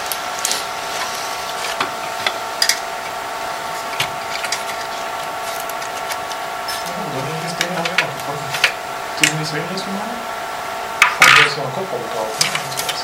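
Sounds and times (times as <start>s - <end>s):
steady tonal hum: 0.0s - 13.0s
hands handling computer parts: 3.8s - 6.9s.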